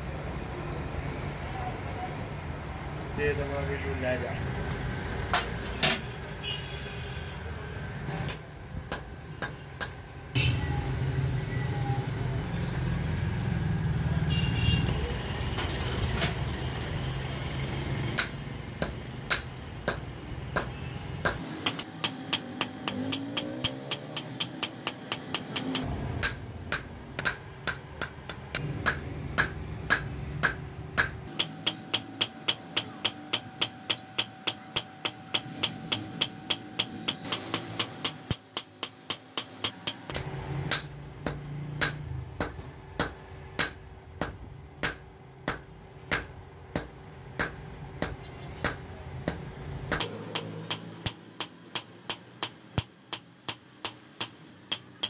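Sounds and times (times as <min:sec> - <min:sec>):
hammer striking metal on anvil: 0:18.2 - 0:55.0.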